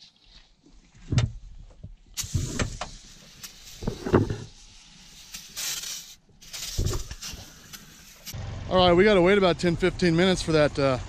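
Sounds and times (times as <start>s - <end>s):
aerosol can spraying: 2.2s - 8.4s.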